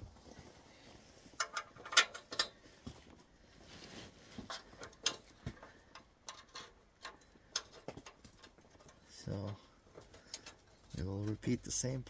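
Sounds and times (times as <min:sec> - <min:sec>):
metal parts clicking and tapping: 0:01.4 - 0:02.6, 0:04.5 - 0:11.5.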